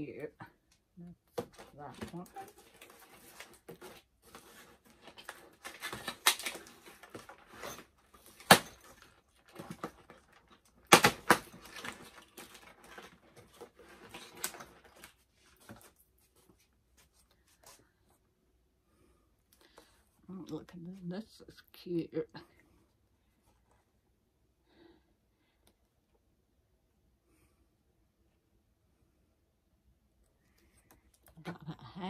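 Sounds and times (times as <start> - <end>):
packaging rustling and scraping: 1.4 - 18.2.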